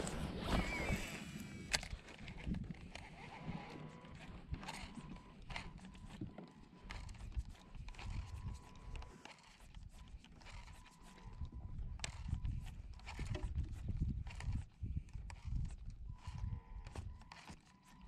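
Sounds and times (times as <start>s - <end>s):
low wind rumble on microphone: 0.0s - 6.2s, 11.3s - 17.2s.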